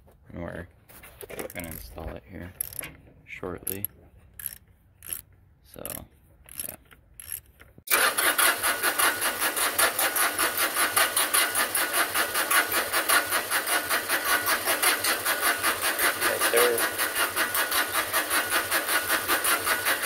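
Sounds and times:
diesel engine cranking: 1.3 - 20.0
wrench clinking on metal: 2.6 - 3.0, 3.6 - 7.6.

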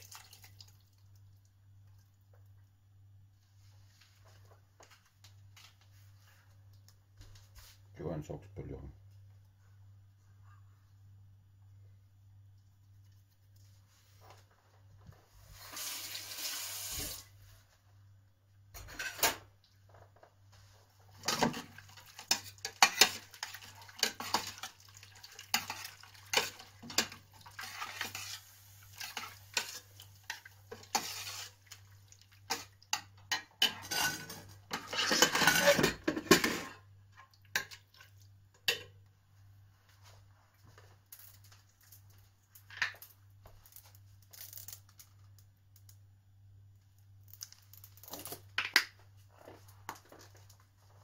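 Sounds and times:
metal spoon scraping in pot: 21.3 - 31.8, 32.5 - 36.8.

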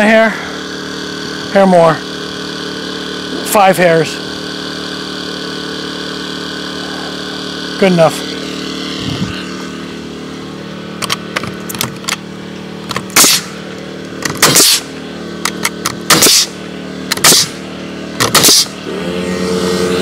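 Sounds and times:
motor humming: 0.0 - 20.0
nail gun shots with air hiss: 12.9 - 13.6, 14.2 - 14.9, 15.5 - 17.6, 18.2 - 18.8.

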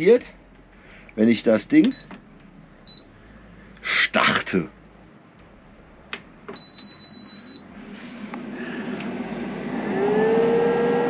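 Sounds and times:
fan whirring hum: 0.0 - 11.0
high beep: 1.8 - 2.1, 2.8 - 3.1, 6.6 - 7.7.

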